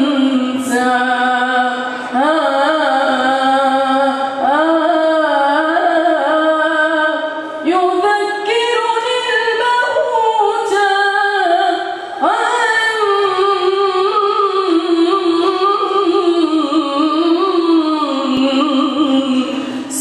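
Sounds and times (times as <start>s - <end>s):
boy singing unaccompanied: 0.0s - 7.2s.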